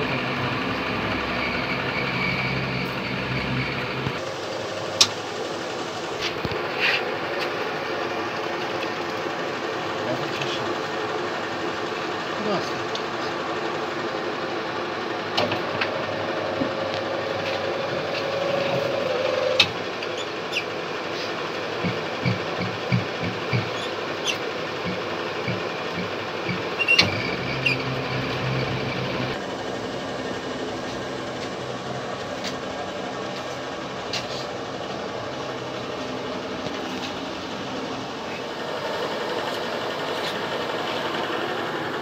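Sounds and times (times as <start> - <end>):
mixer motor humming: 10.8 - 42.0
electric motor humming: 15.6 - 20.6, 21.8 - 29.4.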